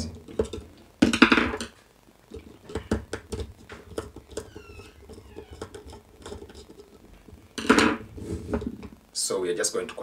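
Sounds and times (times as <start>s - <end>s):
wires clicking and rustling: 0.0s - 9.0s
falling squeak: 4.4s - 5.6s.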